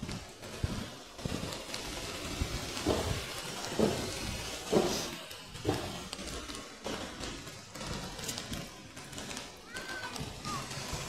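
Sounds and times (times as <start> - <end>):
city street noise: 0.0 - 11.0
footsteps on wet paving: 0.0 - 11.0.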